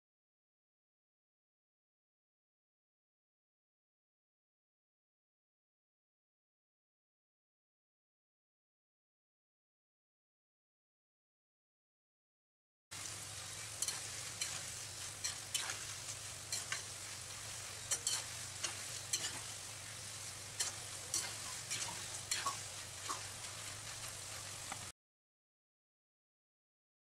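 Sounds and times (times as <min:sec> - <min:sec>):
potato deep-frying in hot oil: 0:12.9 - 0:24.9
metal spoon stirring: 0:13.1 - 0:24.6.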